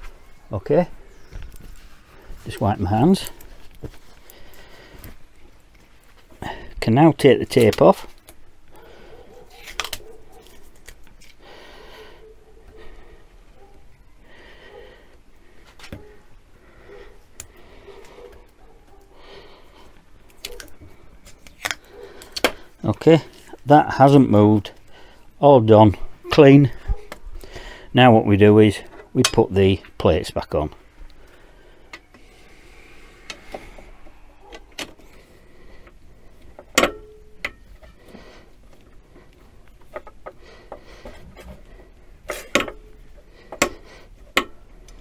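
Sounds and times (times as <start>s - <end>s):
soft breathing: 3.2s - 6.8s, 8.7s - 21.2s, 21.8s - 23.6s, 24.7s - 25.4s, 26.8s - 28.0s, 30.8s - 36.7s, 37.5s - 45.0s
metal plate clicks and knocks: 36.6s - 37.6s.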